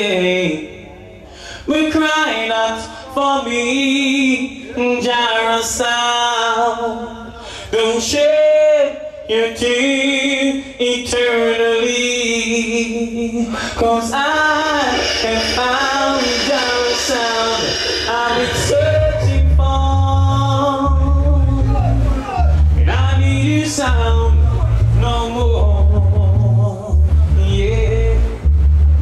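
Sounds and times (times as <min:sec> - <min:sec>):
man singing long notes: 0:11.1 - 0:28.5.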